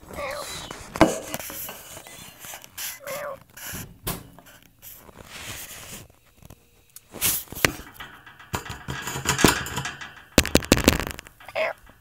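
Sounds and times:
kittens rustling on newspaper: 0:00.0 - 0:07.7.

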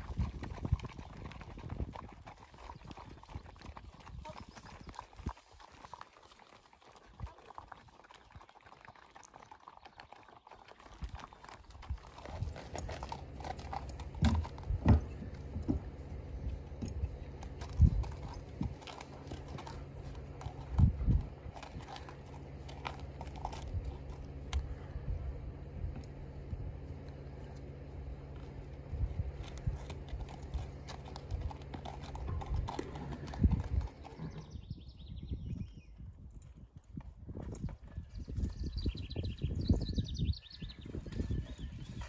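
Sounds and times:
horse hooves clip-clopping: 0:00.0 - 0:34.8, 0:35.4 - 0:42.0
steady low hum: 0:11.0 - 0:42.0
dull thumps: 0:14.2 - 0:16.0.

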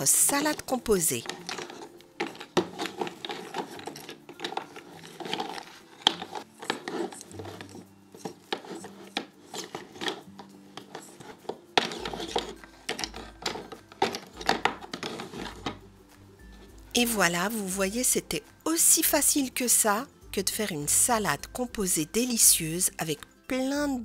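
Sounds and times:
wooden pieces clattering in bowl: 0:00.0 - 0:15.9
wood rubbing: 0:00.0 - 0:16.9.

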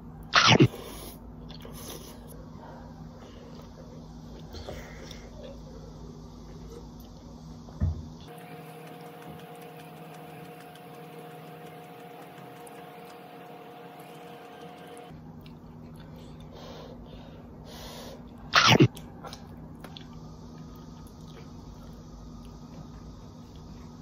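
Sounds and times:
low room hum: 0:00.0 - 0:24.0
person sneezing: 0:18.6 - 0:18.9.

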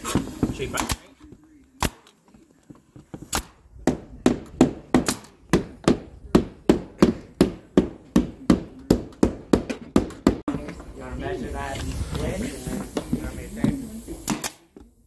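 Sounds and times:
hammer striking wood: 0:03.8 - 0:10.5.

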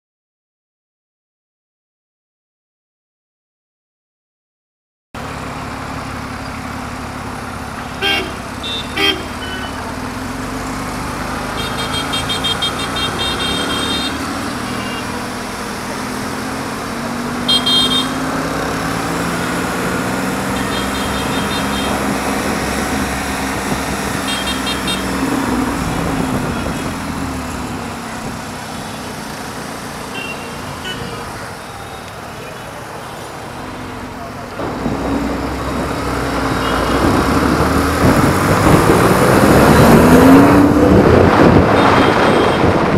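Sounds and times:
vehicle engines running: 0:05.2 - 0:42.9
car horns tooting: 0:07.7 - 0:10.0, 0:11.4 - 0:15.2, 0:17.4 - 0:18.6, 0:20.4 - 0:28.0, 0:30.1 - 0:33.5, 0:36.4 - 0:37.5, 0:41.5 - 0:42.9.

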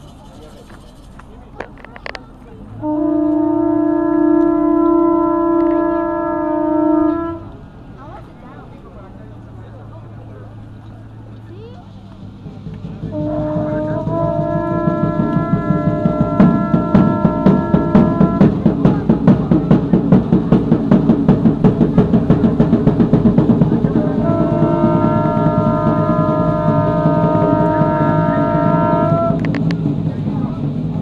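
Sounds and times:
conch shell trumpet blowing: 0:02.8 - 0:07.5, 0:13.1 - 0:18.6, 0:24.0 - 0:29.6
fast drumming: 0:14.5 - 0:28.0.

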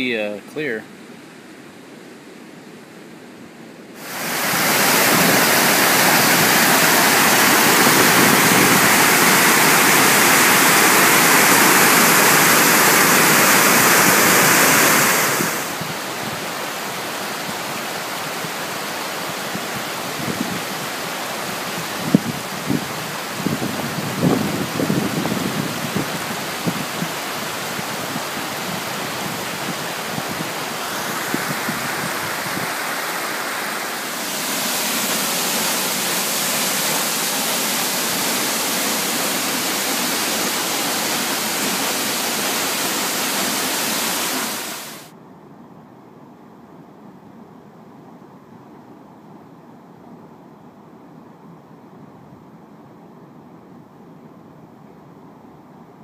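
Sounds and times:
splashes: 0:04.0 - 0:23.6, 0:24.8 - 0:45.1
waterfall rushing water: 0:04.0 - 0:45.1.

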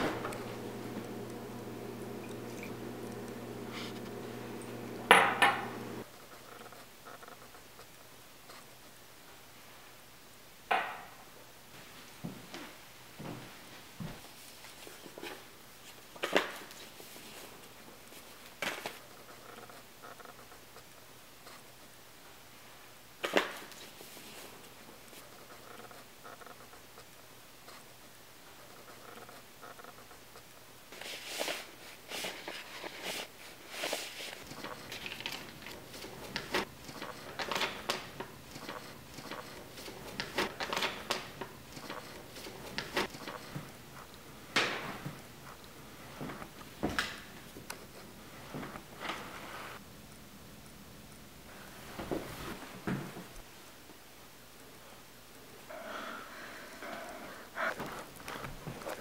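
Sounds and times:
paper envelopes rustling: 0:00.0 - 0:05.0, 0:30.9 - 0:44.0.

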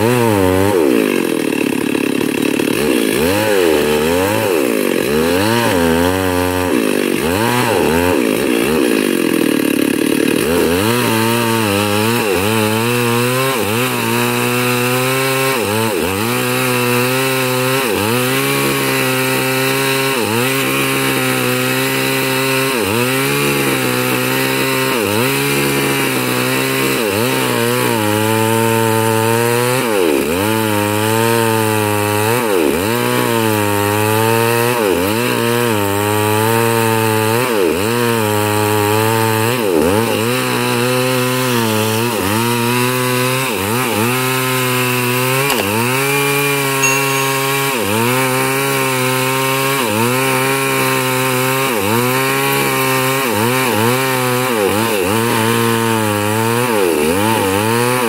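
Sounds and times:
chainsaw cutting log: 0:00.0 - 0:58.0.

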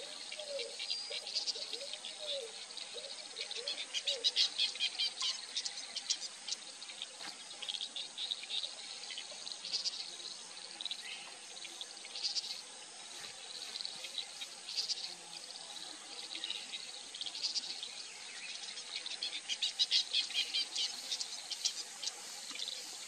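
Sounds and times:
insects and birds chirping: 0:00.0 - 0:23.0
soft low wavering calls: 0:07.8 - 0:23.0.

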